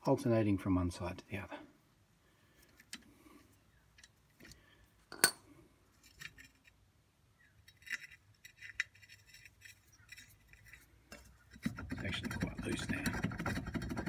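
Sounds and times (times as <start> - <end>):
metal clink: 5.1 - 5.5
bolt ticking and scraping in drum: 7.7 - 14.0.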